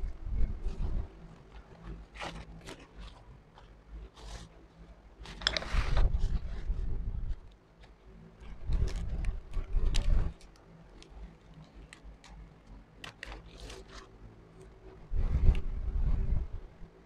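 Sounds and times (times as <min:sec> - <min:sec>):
sharp paper ticks: 0:07.4 - 0:14.8.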